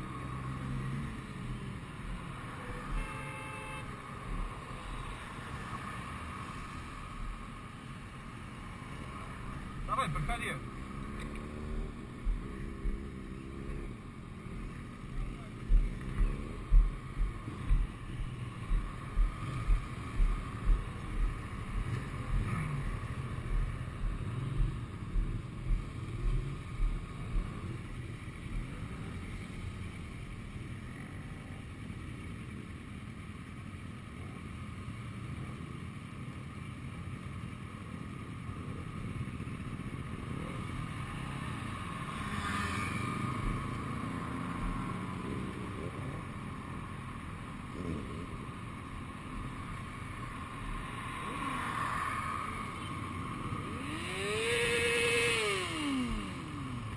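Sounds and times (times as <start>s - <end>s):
motorcycle engines in traffic: 0.0s - 56.9s
motorcycle passing close: 8.8s - 31.7s, 38.5s - 56.9s
low regular thumps: 9.7s - 29.0s.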